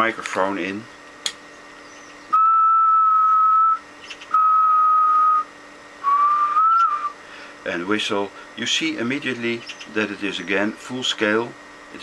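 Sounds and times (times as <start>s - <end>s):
person whistling steady notes: 2.3s - 7.2s.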